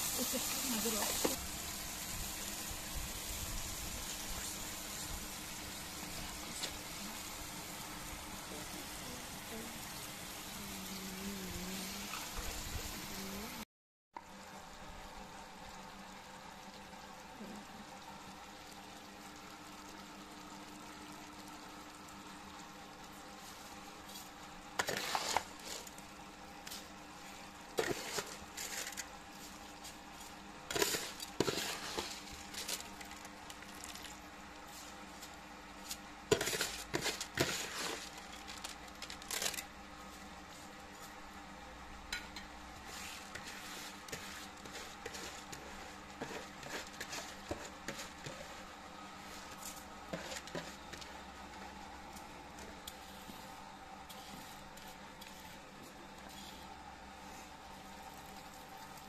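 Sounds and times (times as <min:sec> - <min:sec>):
low sizzle: 0:00.0 - 0:59.0
metal ladle scraping pot: 0:30.7 - 0:32.8, 0:36.3 - 0:38.2.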